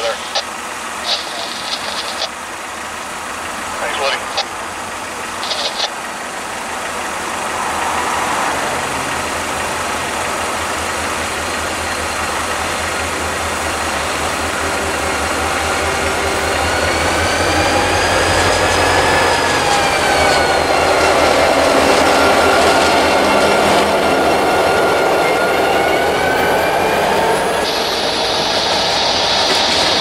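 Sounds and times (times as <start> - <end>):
diesel locomotive engine drone: 0.0 - 30.0
wheels squealing on rail: 13.0 - 30.0.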